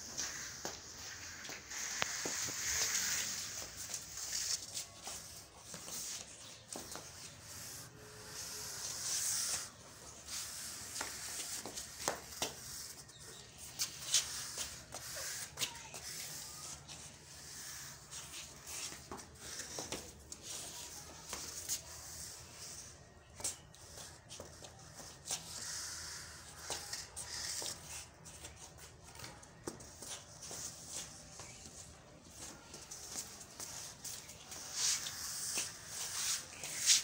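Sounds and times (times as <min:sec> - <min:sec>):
shuffling steps: 0:00.0 - 0:37.0
squeegee scraping wet floor: 0:00.1 - 0:06.1, 0:34.6 - 0:37.0.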